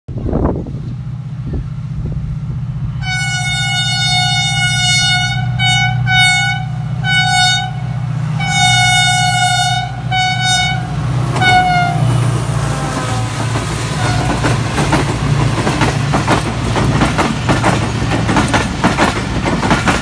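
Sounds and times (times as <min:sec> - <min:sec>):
locomotive engine droning: 0:00.1 - 0:20.0
train horn blasts: 0:02.9 - 0:14.6.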